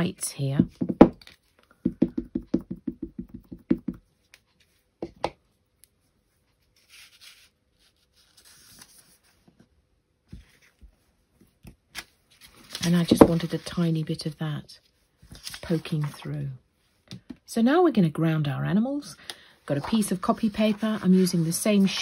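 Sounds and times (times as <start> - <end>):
stamp tapping on ink pad: 1.8 - 4.0
paper rustling: 6.7 - 9.5, 12.0 - 13.9, 15.2 - 16.4, 19.7 - 22.0.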